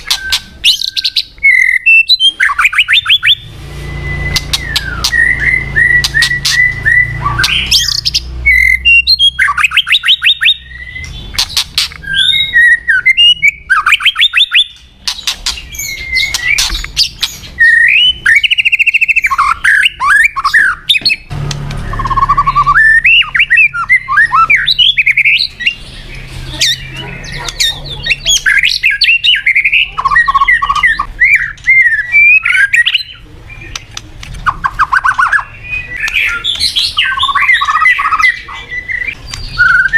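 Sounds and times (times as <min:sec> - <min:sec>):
bird singing whistles and trills: 0:00.0 - 0:39.9
bird sharp clicks: 0:33.7 - 0:35.4.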